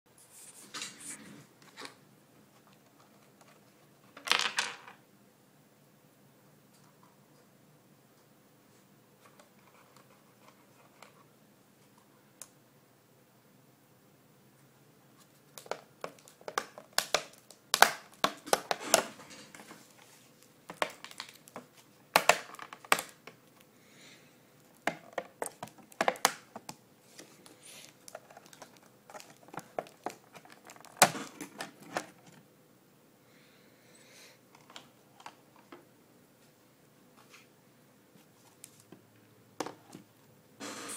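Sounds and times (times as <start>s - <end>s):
hands handling plastic case: 15.2s - 23.6s, 24.6s - 32.4s.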